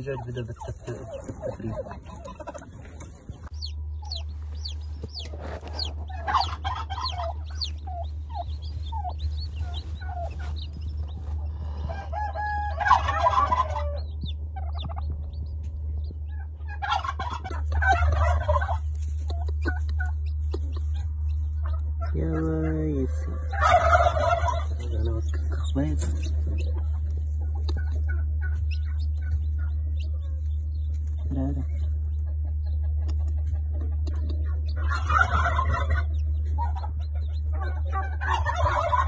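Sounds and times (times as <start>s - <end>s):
hen calling: 0.0s - 15.0s, 16.3s - 31.9s
chicks peeping: 0.0s - 39.0s
steady low hum: 0.0s - 39.0s.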